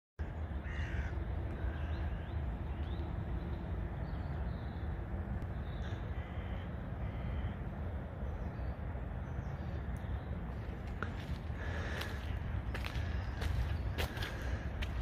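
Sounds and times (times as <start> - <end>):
crow cawing: 0.2 - 2.2, 6.1 - 7.6.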